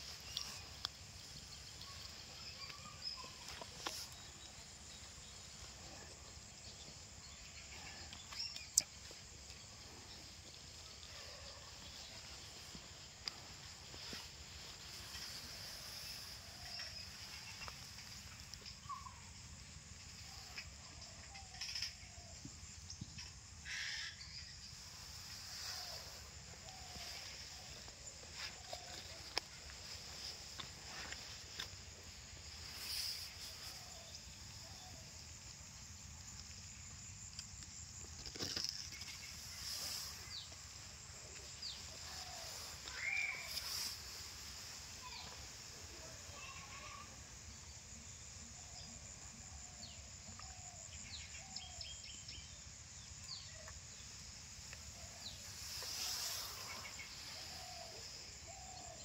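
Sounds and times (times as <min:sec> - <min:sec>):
faint bird chirps: 0:00.0 - 0:19.6, 0:38.9 - 0:47.1.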